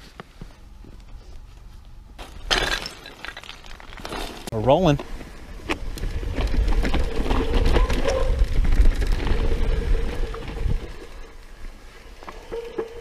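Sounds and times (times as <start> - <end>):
low rumble of wind and rolling: 3.3 - 13.0
bike clicks and rattles: 3.8 - 11.4.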